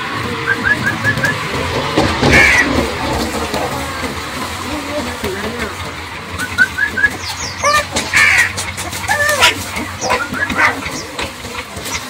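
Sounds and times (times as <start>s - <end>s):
puppies whimpering and yelping: 6.3s - 12.0s.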